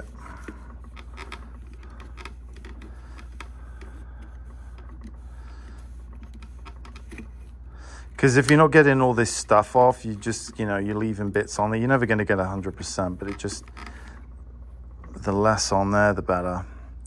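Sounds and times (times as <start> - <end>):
tape ticking against tissue: 0.0 - 8.9
motor hum: 0.0 - 17.0.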